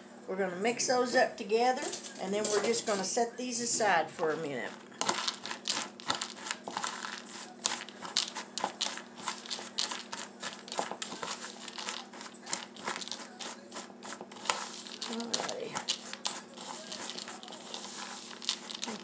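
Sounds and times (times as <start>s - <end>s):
nuts clicking in a ceramic bowl: 5.0s - 13.5s, 14.4s - 19.0s.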